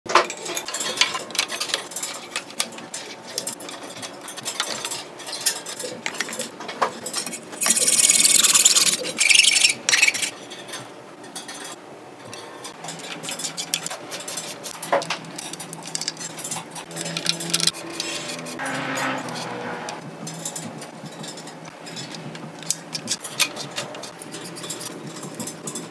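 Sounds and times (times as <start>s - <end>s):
bike parts and tools clicking: 0.1s - 10.3s, 12.7s - 25.9s.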